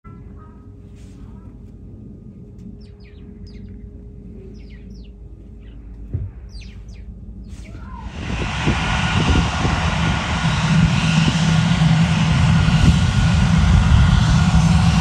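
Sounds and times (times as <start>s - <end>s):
low steady rumble: 0.0s - 15.0s
aircraft engines rushing: 0.1s - 15.0s
small birds chirping: 2.7s - 8.0s.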